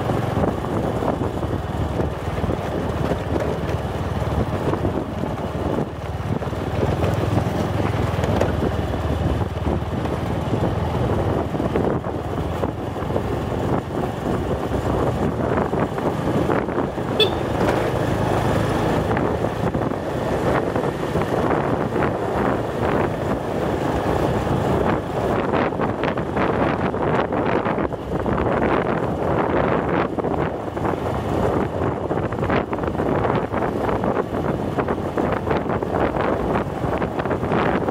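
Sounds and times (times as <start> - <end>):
small motorcycle engine running: 0.0 - 25.6
wind buffeting microphone: 0.0 - 37.9.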